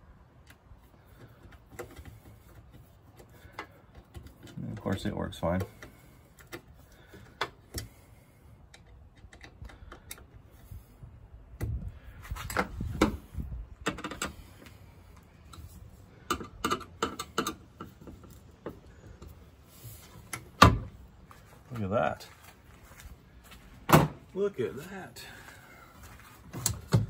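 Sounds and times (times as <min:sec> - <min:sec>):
small clicks and knocks: 0:08.7 - 0:10.4.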